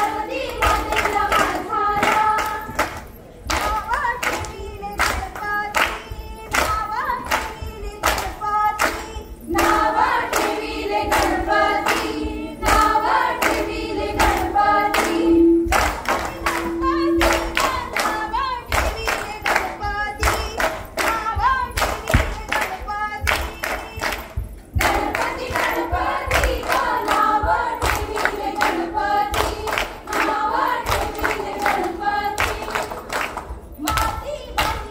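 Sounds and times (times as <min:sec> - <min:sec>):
rhythmic hand claps: 0:00.0 - 0:34.9
women singing folk song: 0:00.0 - 0:34.9.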